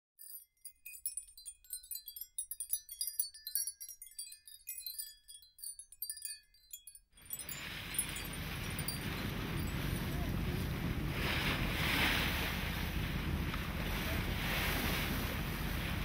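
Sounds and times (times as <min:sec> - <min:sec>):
high chime-like tinkling: 0:00.2 - 0:10.6
wind and water rushing: 0:07.2 - 0:16.0.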